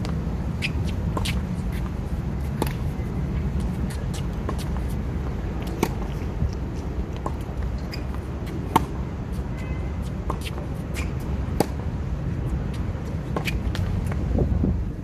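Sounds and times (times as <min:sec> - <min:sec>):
tennis balls struck by rackets: 0:03.5 - 0:09.1
steady low rumble: 0:10.6 - 0:15.0.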